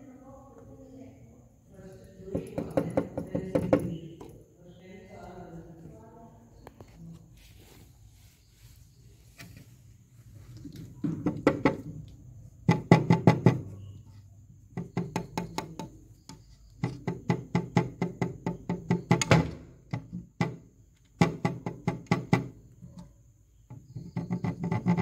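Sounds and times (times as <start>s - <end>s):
fingers tapping on window glass: 2.2s - 4.4s, 11.0s - 14.0s, 14.7s - 23.1s, 23.7s - 25.0s.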